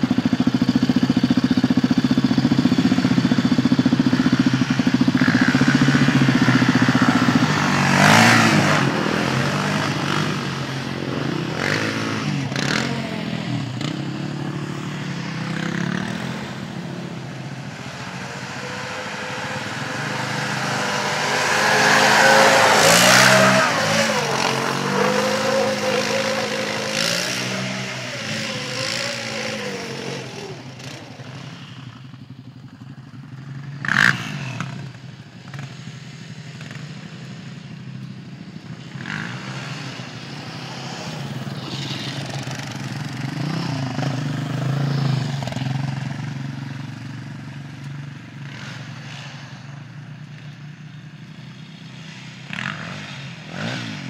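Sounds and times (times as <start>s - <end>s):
quad engine revving: 0.0s - 32.1s, 33.8s - 35.8s, 38.9s - 47.5s, 51.8s - 54.0s.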